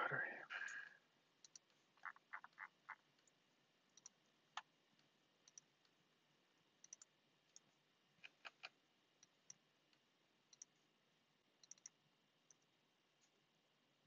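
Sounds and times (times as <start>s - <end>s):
mouse clicks and key presses: 1.4s - 6.0s, 6.8s - 10.8s, 11.6s - 13.4s.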